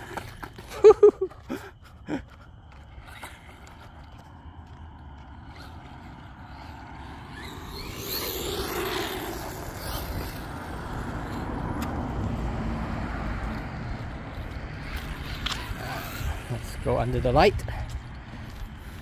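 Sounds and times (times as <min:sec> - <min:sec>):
rumble of passing cars: 0:00.0 - 0:19.0.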